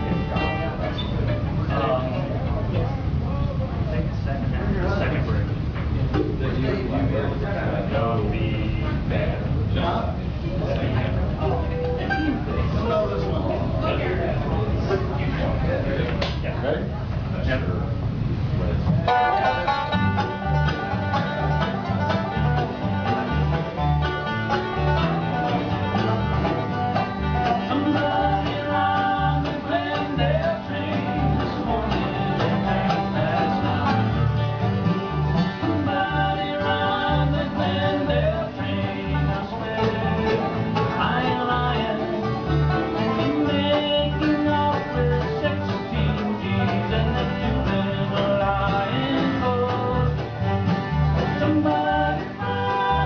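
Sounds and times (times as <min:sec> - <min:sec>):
banjo: 0:00.0 - 0:02.9, 0:18.8 - 0:53.0
acoustic guitar picking: 0:00.0 - 0:03.2, 0:04.8 - 0:16.5, 0:18.2 - 0:53.0
mandolin: 0:00.0 - 0:03.4, 0:04.8 - 0:16.5, 0:18.3 - 0:53.0
upright bass: 0:00.0 - 0:53.0.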